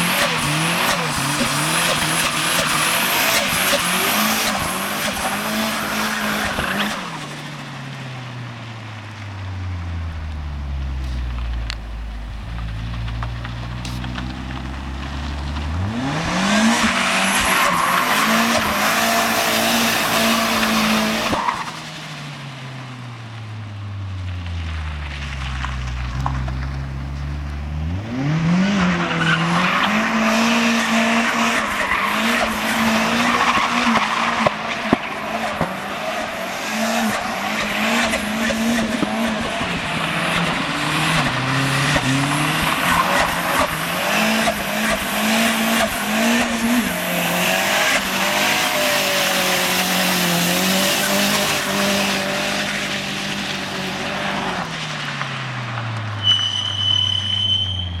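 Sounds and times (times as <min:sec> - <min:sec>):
car engine revving high: 0:00.0 - 0:22.1, 0:24.1 - 0:55.5
tyres screeching: 0:56.2 - 0:58.0.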